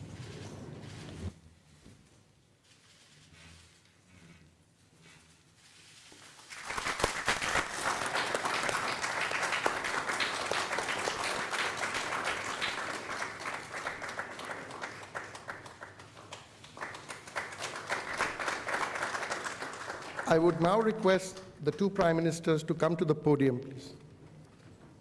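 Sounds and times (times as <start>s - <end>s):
audience applauding: 6.5s - 21.2s.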